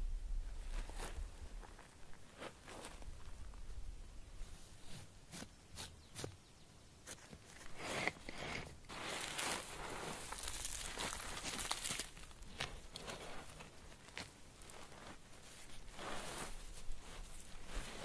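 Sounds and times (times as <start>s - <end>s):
hands scraping gravelly soil: 4.4s - 18.0s.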